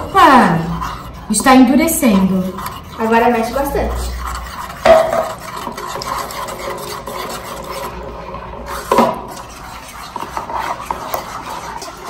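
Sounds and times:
spoon scraping slime in a bowl: 0.0 - 12.0
knock: 4.8 - 5.2.

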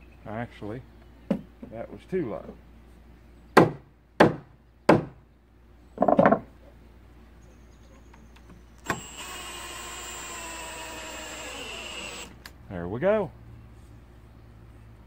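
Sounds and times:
cordless drill running: 8.8 - 12.4.

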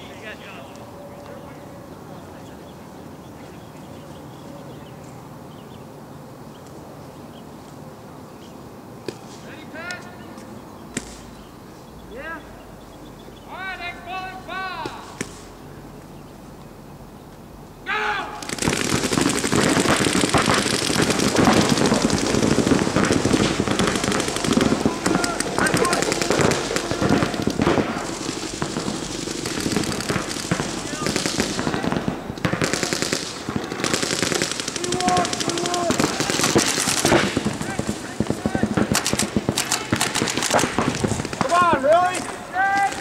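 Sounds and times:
outdoor background noise: 0.0 - 43.0
paintball markers firing rapidly: 18.4 - 43.0.

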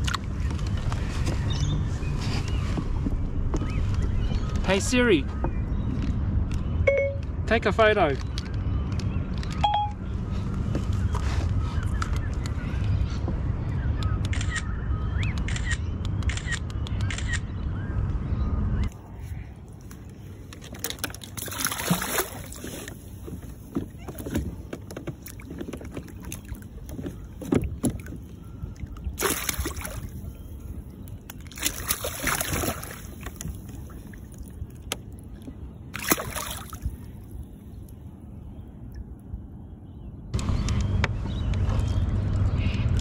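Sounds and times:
water splashing against kayak: 20.4 - 30.8, 31.4 - 37.2
knocks and clicks on hull: 20.5 - 30.0.

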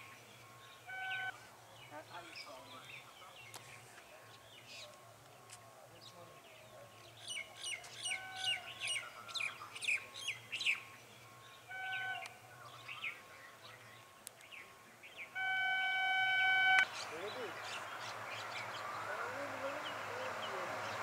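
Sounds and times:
small birds chirping: 0.0 - 21.0
train air horn: 0.9 - 1.4, 8.1 - 8.7, 11.7 - 12.3, 15.4 - 16.8.

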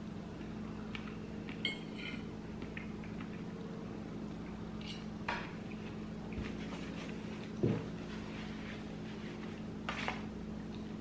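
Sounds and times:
steady low hum: 0.0 - 11.0
fork clinking on a plate: 1.6 - 2.3, 4.8 - 5.1
soft chewing: 2.4 - 7.6.

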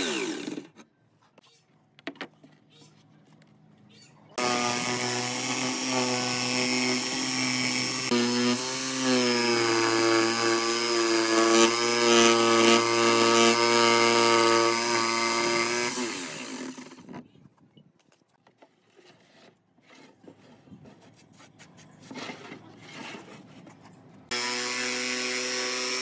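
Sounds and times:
electric jigsaw cutting wood: 0.0 - 0.8, 4.4 - 17.1, 24.3 - 26.0.

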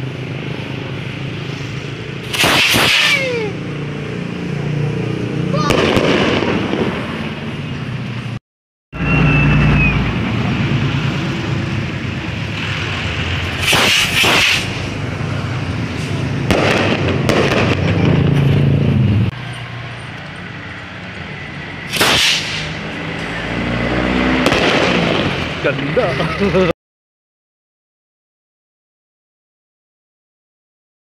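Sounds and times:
fireworks crackling: 2.2 - 3.5, 5.6 - 7.6, 12.4 - 18.7, 21.8 - 23.0, 24.4 - 26.2.

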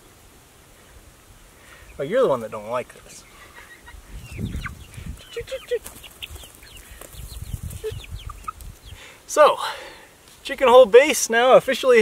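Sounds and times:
chicks peeping: 0.8 - 9.3
chicken clucks: 2.9 - 9.0.

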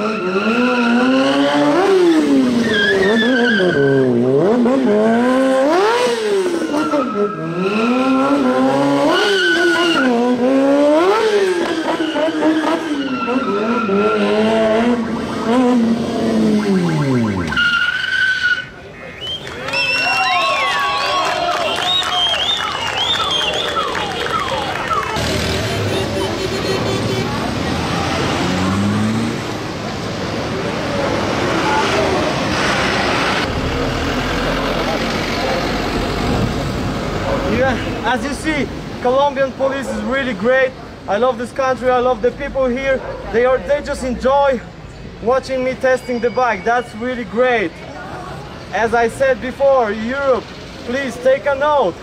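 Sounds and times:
tyres squealing on asphalt: 0.0 - 4.3, 6.0 - 29.0, 37.2 - 52.0
motorcycle engine revving: 0.0 - 17.6, 25.1 - 29.7
street traffic passing: 0.0 - 52.0
diesel truck engine: 6.3 - 46.9.

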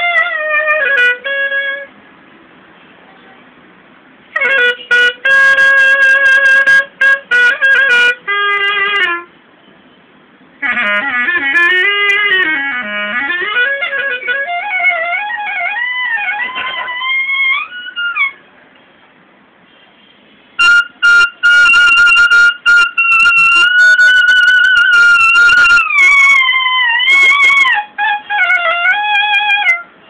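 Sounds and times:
solo clarinet: 0.0 - 1.9, 4.3 - 9.3, 10.6 - 18.4, 20.6 - 29.9.

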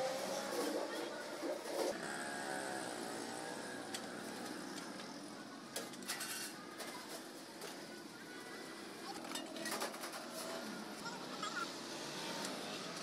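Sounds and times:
steady background noise: 0.0 - 13.0.

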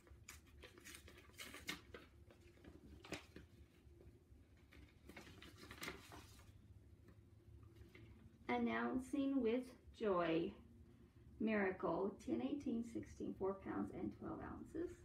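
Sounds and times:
paper rustling: 0.0 - 6.6.

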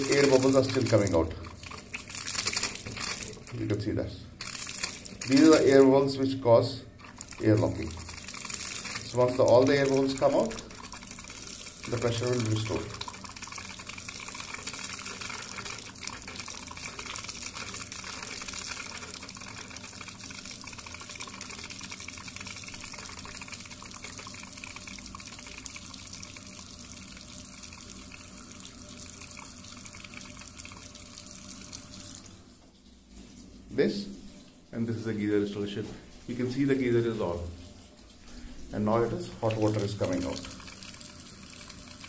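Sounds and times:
air bubbles sputtering in water stream: 0.0 - 3.7
tap water running into basin: 0.0 - 6.2, 6.8 - 42.0.

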